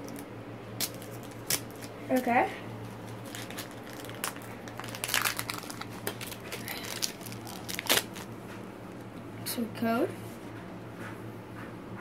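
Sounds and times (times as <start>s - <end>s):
foil wrapper crinkling: 0.8s - 8.4s.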